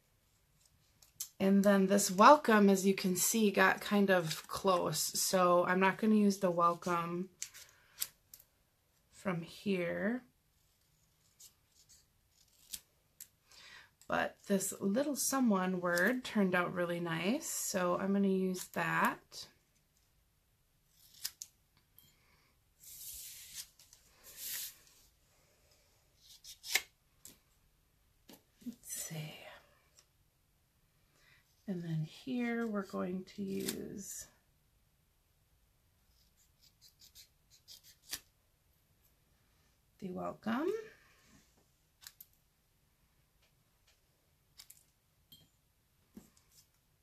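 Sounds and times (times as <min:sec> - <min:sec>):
scissors cutting cardstock: 0:26.2 - 0:26.9.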